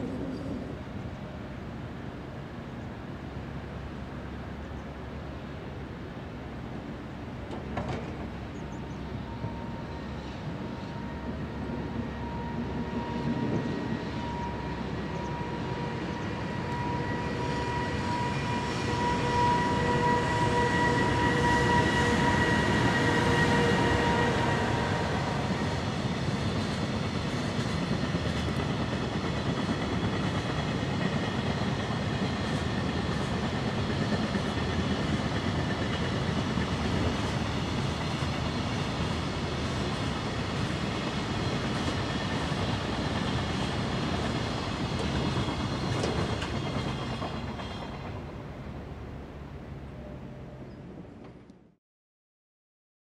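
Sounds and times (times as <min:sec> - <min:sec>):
freight train rumbling past: 0:00.0 - 0:51.5
electric locomotive whine: 0:00.0 - 0:51.6.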